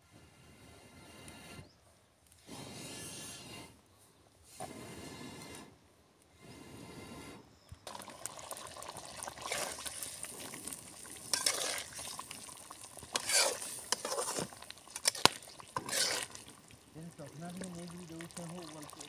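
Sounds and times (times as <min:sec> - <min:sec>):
spatula scraping metal pot: 0:09.4 - 0:16.6.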